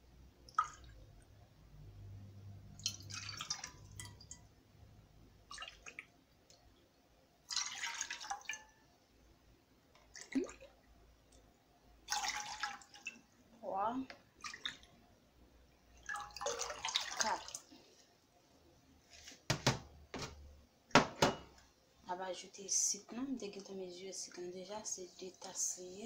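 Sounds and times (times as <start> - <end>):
water pouring into metal pot: 2.8 - 4.4, 7.5 - 8.7, 12.1 - 13.2, 16.0 - 17.7.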